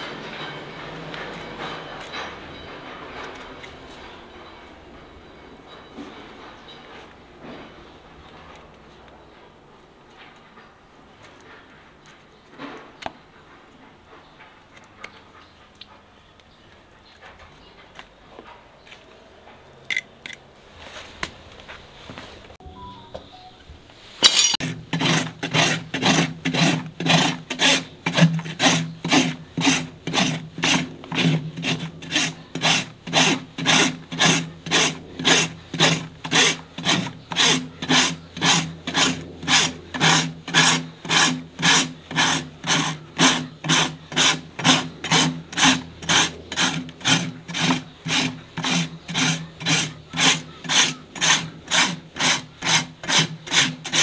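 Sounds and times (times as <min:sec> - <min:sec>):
rasp filing hoof: 0:24.2 - 0:54.0.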